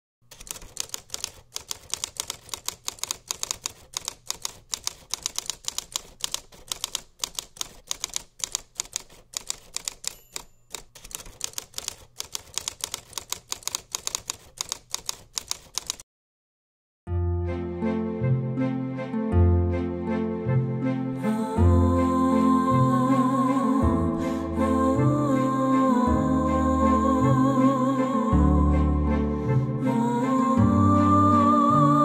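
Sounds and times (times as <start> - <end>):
typewriter keys clacking: 0.2 - 16.0.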